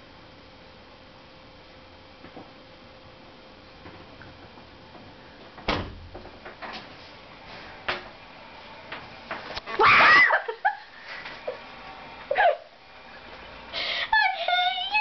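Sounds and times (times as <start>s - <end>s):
short cries: 9.7s - 10.5s
person screaming in fright: 9.8s - 10.5s.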